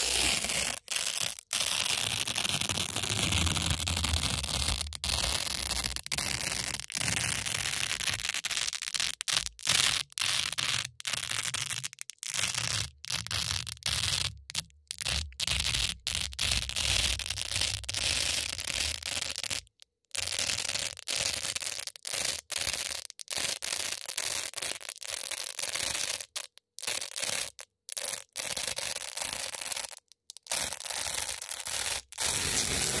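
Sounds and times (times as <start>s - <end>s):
hook-and-loop tape ripping: 0.0s - 19.6s, 27.1s - 33.0s.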